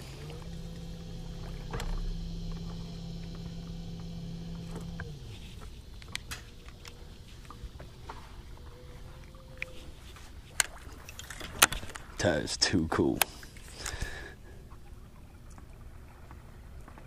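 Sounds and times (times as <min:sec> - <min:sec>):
electric motor hum winding down: 0:00.0 - 0:08.6.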